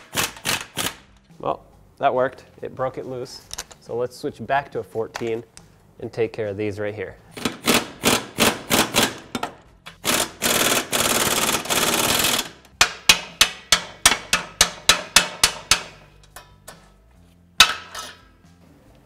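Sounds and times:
air impact gun hammering: 0:07.4 - 0:16.1.

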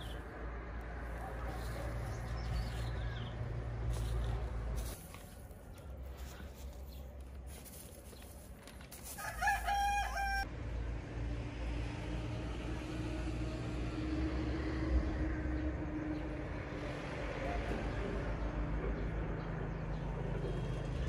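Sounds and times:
rooster crowing: 0:09.2 - 0:10.5.

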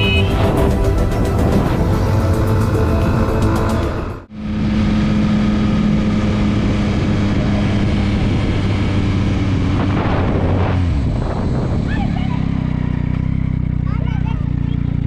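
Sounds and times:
wind noise: 0:00.0 - 0:12.1
motorcycle engine running: 0:00.0 - 0:15.0.

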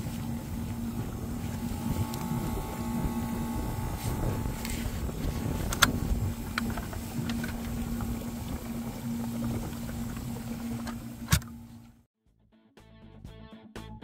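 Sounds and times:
water churning and bubbling: 0:00.0 - 0:11.7
pump hum: 0:00.0 - 0:12.0.

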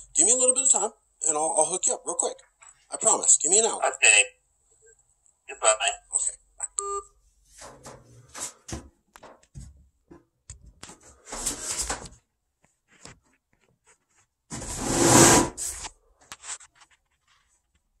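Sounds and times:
rubbing scrapes on microphone: 0:12.8 - 0:17.7.

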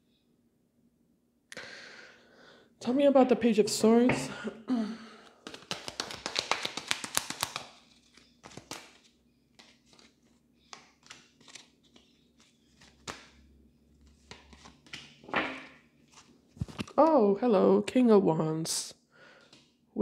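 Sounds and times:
cards being shuffled: 0:05.4 - 0:13.3, 0:14.1 - 0:15.2.

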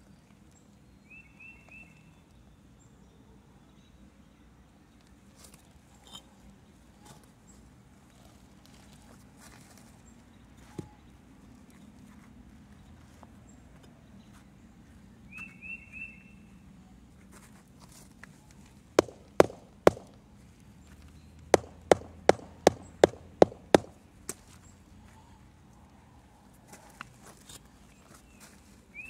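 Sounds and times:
rubber mallet tapping concrete: 0:19.0 - 0:20.2, 0:21.6 - 0:24.0.

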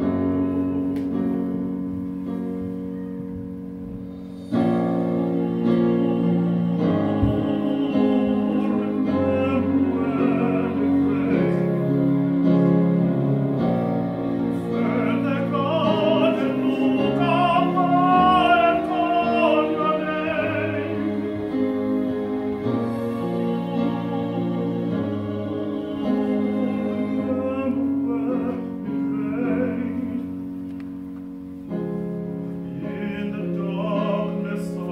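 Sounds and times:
male vocal quartet singing: 0:04.6 - 0:12.8, 0:13.5 - 0:30.5, 0:32.7 - 0:34.9.

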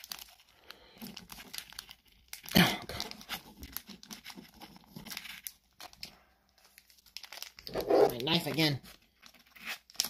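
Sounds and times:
foil wrapper crinkling: 0:00.0 - 0:10.0
foil ripping: 0:09.2 - 0:10.0.

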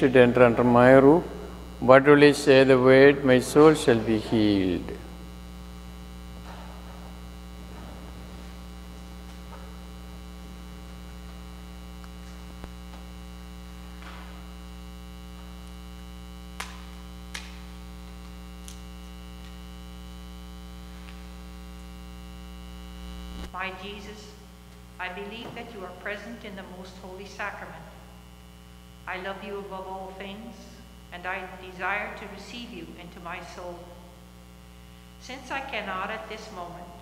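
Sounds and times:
electrical mains hum: 0:00.0 - 0:37.0.

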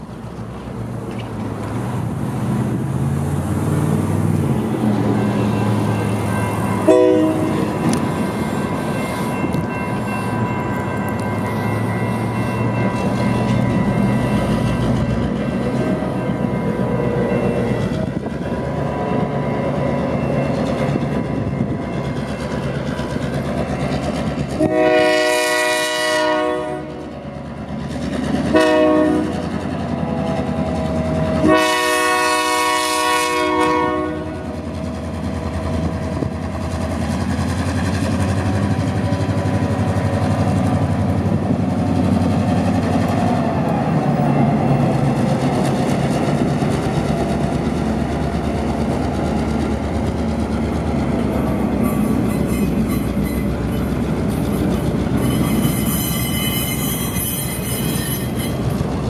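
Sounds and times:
locomotive horn blasts: 0:06.8 - 0:08.0, 0:24.6 - 0:27.2, 0:28.5 - 0:29.5, 0:31.4 - 0:34.6.

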